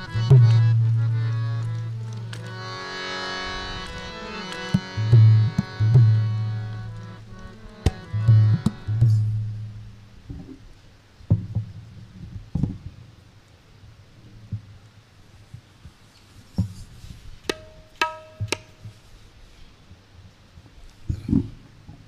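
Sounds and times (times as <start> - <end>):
harmonium sustained chord: 0.0 - 10.2
deep tabla strokes: 0.0 - 10.6, 16.5 - 19.2.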